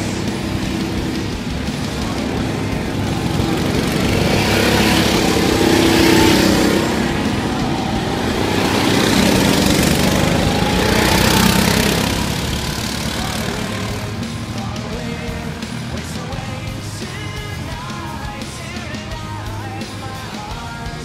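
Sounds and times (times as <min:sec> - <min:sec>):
go-kart engines passing: 0:00.0 - 0:21.0.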